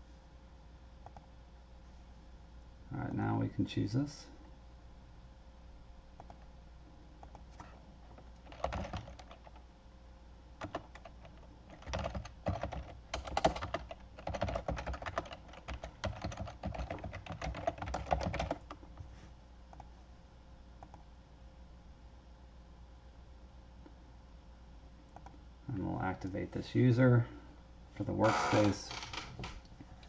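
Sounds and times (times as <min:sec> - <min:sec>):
keyboard typing clicks: 0:08.4 - 0:09.6, 0:10.6 - 0:18.8.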